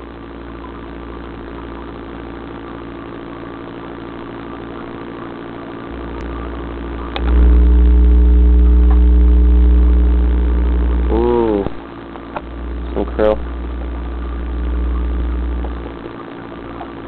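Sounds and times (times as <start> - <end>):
mechanical hum with low drone: 0.0 - 17.0
click: 7.1 - 7.5, 8.8 - 9.1.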